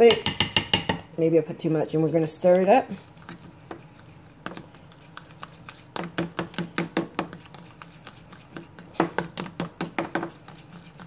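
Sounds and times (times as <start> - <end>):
metal spoon tapping plastic bowl: 0.0 - 1.0.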